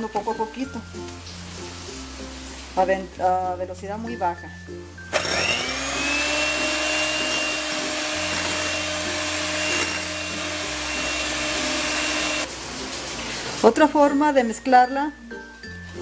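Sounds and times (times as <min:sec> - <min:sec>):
electric hand mixer whine: 0:05.1 - 0:12.5.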